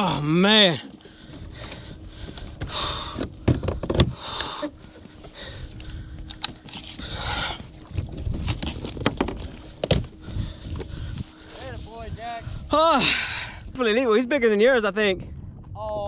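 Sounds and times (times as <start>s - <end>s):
water noise: 0.0s - 13.8s
wind: 0.0s - 16.0s
fishing rod and reel rattling: 3.2s - 11.0s.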